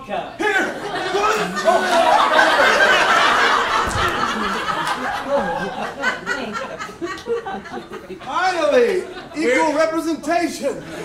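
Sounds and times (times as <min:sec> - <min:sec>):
audience laughing: 0:00.5 - 0:11.0.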